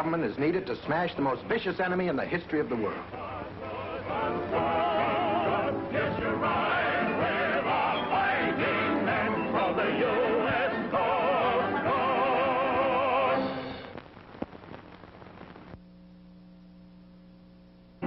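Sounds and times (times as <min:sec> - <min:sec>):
quiet steady hum: 0:00.0 - 0:18.0
faint crackle: 0:13.6 - 0:18.0.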